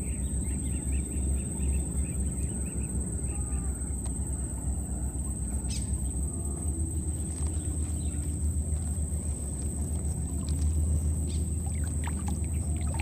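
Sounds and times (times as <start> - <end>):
low rumble: 3.9 - 13.0.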